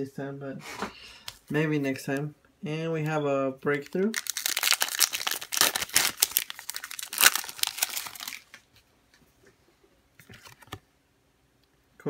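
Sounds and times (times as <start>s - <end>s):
foil wrapper crinkling and tearing: 3.8s - 8.6s.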